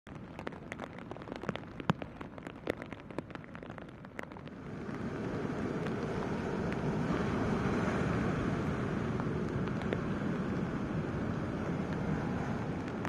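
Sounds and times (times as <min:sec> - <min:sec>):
wind: 0:00.0 - 0:13.0
raindrop taps: 0:00.1 - 0:07.9, 0:09.0 - 0:13.0
rain falling: 0:00.1 - 0:13.0
surf breaking on beach: 0:04.5 - 0:13.0.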